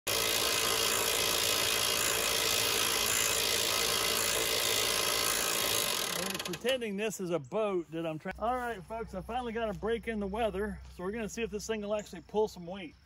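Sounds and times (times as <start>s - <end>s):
electric winch running: 0.1s - 6.8s.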